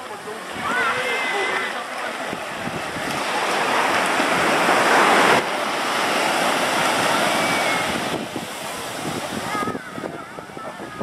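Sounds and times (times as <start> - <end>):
waves breaking on rocks: 0.0 - 11.0.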